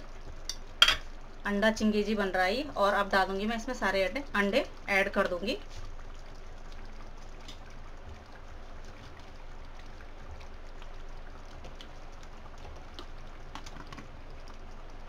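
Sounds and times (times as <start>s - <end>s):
gravy simmering with bubbling hiss: 0.0s - 15.0s
faint soft taps of eggs: 10.2s - 14.6s.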